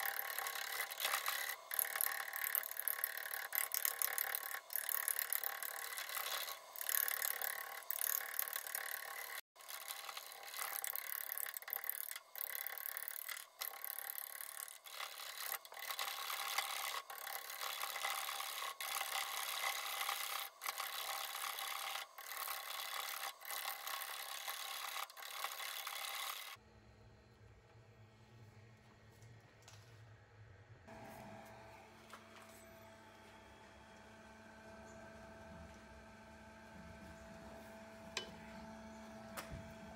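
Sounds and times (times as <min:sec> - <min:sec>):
lathe gouge shearing wood: 0:00.0 - 0:26.6.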